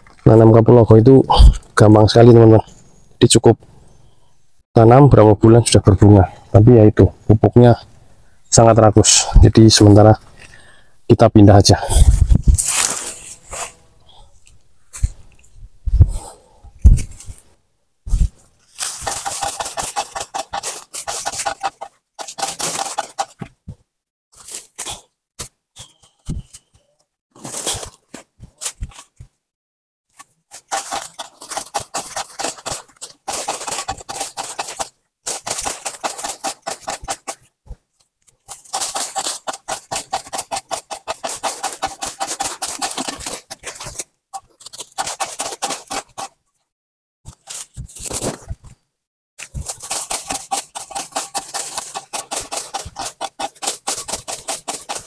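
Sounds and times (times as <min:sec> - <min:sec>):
plants rustling and crackling: 0:12.0 - 0:13.8, 0:16.9 - 0:23.5, 0:30.1 - 0:46.3, 0:49.4 - 0:55.0.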